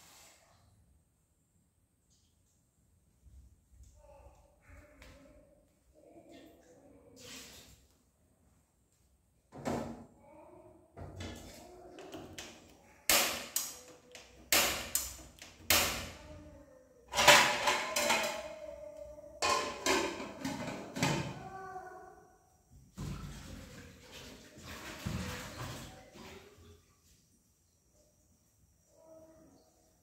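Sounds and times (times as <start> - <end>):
dishes and pots clattering: 17.1 - 18.6, 19.4 - 21.4.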